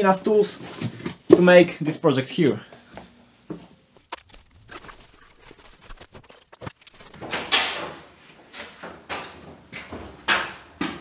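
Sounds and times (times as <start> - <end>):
footsteps walking: 2.4 - 4.1.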